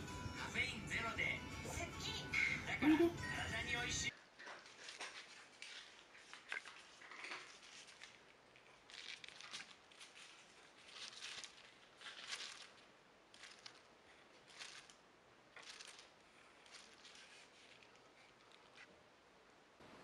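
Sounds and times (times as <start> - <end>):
faint soft rustles: 4.1 - 19.0.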